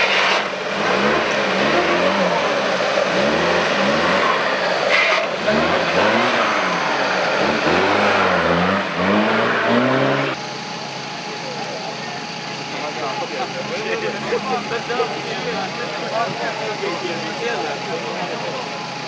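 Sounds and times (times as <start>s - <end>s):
car engine revving: 0.0s - 10.4s.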